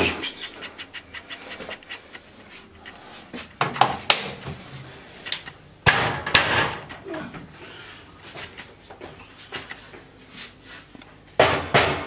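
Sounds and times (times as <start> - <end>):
scattered clicks: 0.0 - 3.0, 5.2 - 5.6
sharp knocks and clatters: 0.0 - 4.6, 5.3 - 7.0, 11.4 - 12.0.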